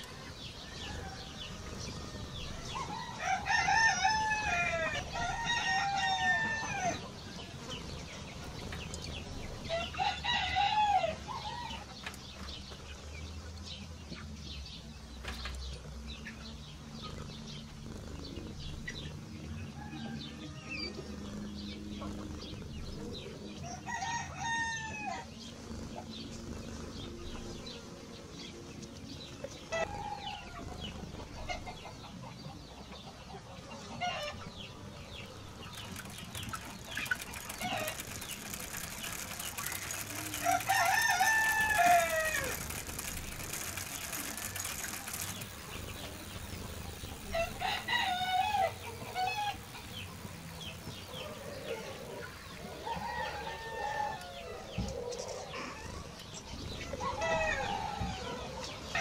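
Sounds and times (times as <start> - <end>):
roosters crowing: 0.0 - 7.8, 9.3 - 12.0, 19.5 - 22.5, 23.1 - 26.6, 29.6 - 32.0, 33.9 - 59.0.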